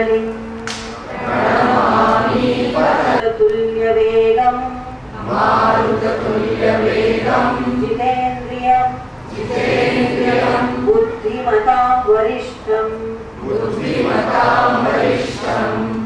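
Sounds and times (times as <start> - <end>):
group of voices chanting: 1.0 - 3.2, 5.2 - 7.9, 9.3 - 10.9, 13.4 - 16.0.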